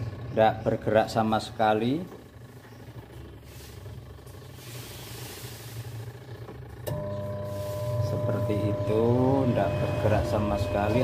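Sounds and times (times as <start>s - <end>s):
washing machine motor humming: 0.0s - 11.0s
higher steady tone: 6.9s - 11.0s.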